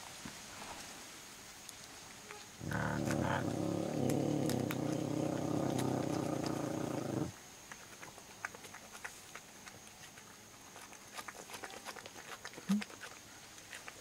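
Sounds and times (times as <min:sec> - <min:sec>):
ocelot low rumble: 0:02.6 - 0:07.3.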